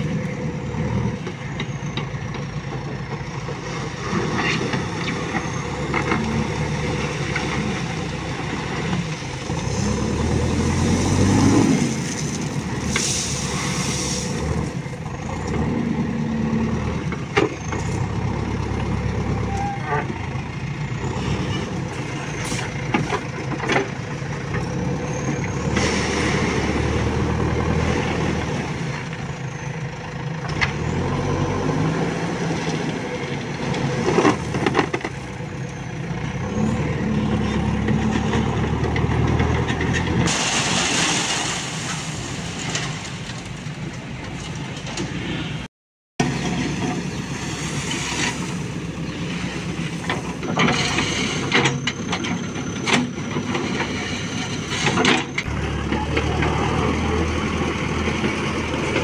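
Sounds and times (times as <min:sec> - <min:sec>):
diesel engine revving: 0:00.0 - 0:59.0
gravel and bucket clatter: 0:01.6 - 0:15.7, 0:32.2 - 0:35.4, 0:37.4 - 0:45.4, 0:46.2 - 0:59.0.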